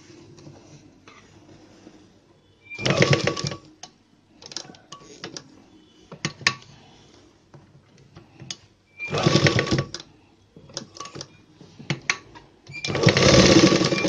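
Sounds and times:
sewing machine stitching: 2.7s - 3.7s, 9.0s - 10.0s, 12.7s - 14.0s.

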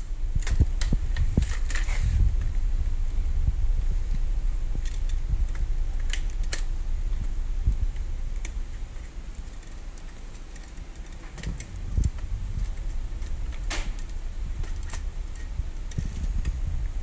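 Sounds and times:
plastic and metal parts clicking: 4.8s - 6.7s, 7.9s - 16.6s.

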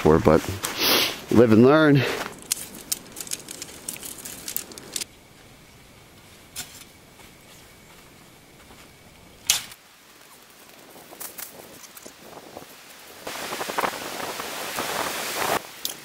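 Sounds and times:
faint steady hiss: 0.0s - 16.0s
small clicks and rustles: 2.2s - 5.1s, 10.2s - 12.3s.

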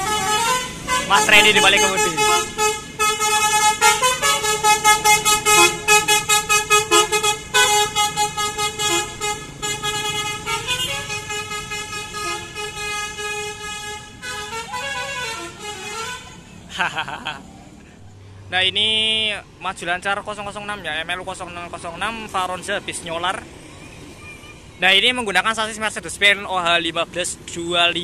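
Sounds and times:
multi-tone air horn tune: 0.0s - 16.4s.

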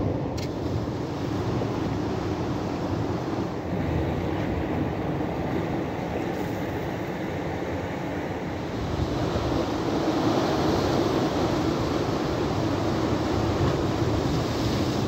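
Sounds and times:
wind rumbling on microphone: 0.0s - 15.0s
surf breaking on rocky shore: 8.7s - 15.0s.

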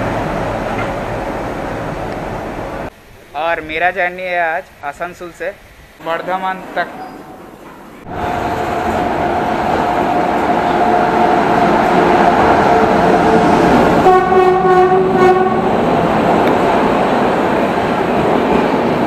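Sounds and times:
train wheels rumbling on rails: 0.0s - 2.9s, 6.0s - 19.0s
locomotive horn: 8.1s - 15.9s.

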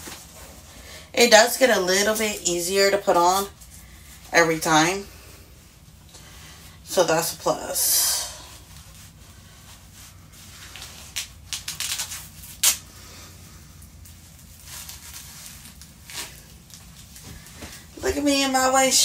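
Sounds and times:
fabric rustling: 7.3s - 19.0s.

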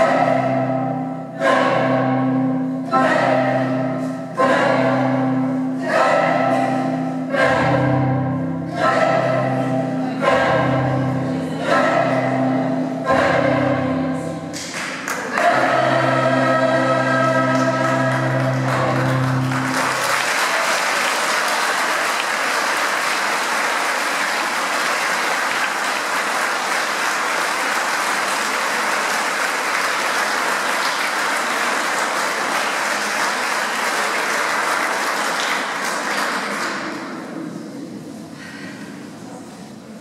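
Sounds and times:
choir holding a chord: 0.0s - 38.2s
audience applause: 17.8s - 37.1s.

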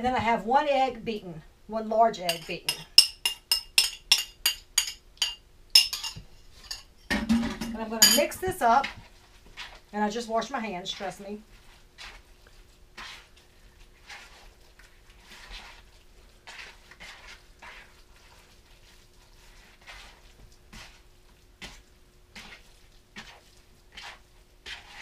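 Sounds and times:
hands squelching wet meat: 11.6s - 25.0s.

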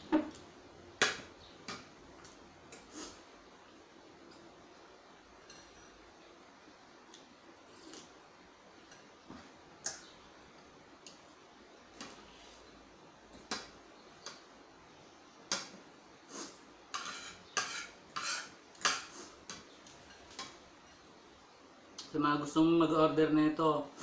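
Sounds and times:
cutlery clinking on plate: 5.4s - 6.0s.

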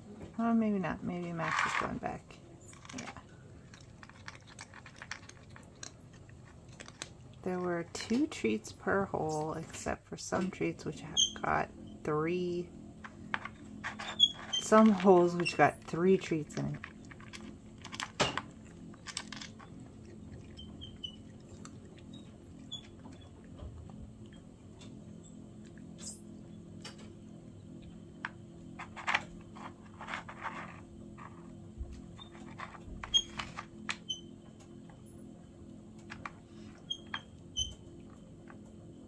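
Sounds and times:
cat crunching treats: 2.6s - 7.4s, 16.7s - 26.0s.

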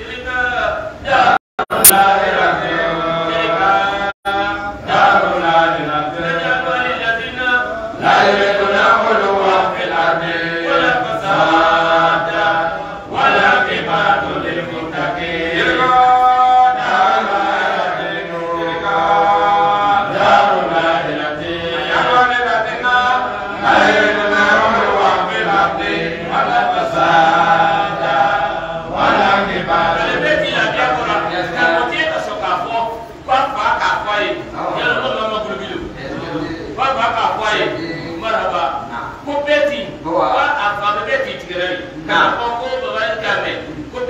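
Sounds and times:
men chanting through a microphone: 0.0s - 44.0s.

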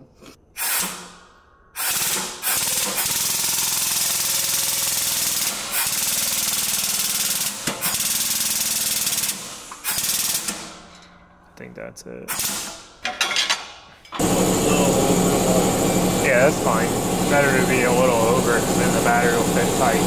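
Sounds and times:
hydraulic jack buzzing chatter: 14.2s - 20.0s.

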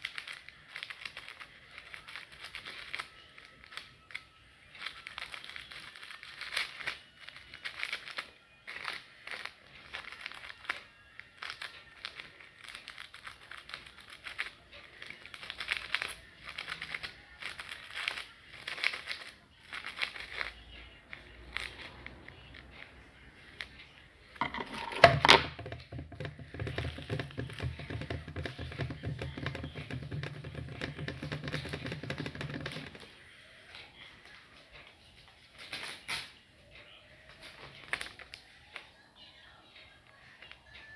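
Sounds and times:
metal can crinkling: 24.4s - 33.1s.

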